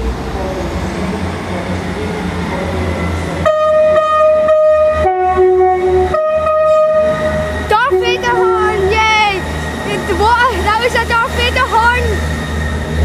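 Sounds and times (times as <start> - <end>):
two-tone train horn: 3.4 - 8.9
diesel train engine pulling away: 6.7 - 13.0.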